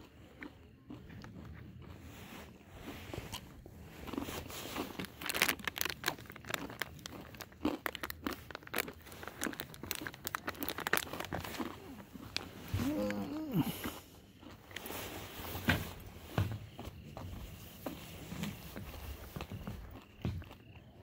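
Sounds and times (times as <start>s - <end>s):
sharp crackles: 4.0s - 13.7s
packaging crinkling and rustling: 4.1s - 13.2s.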